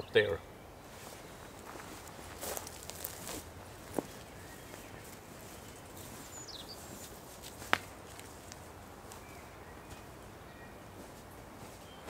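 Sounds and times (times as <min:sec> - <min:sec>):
footsteps in forest: 0:00.8 - 0:12.0
falling bird chirp: 0:04.2 - 0:06.9
twig snapping: 0:07.6 - 0:08.6.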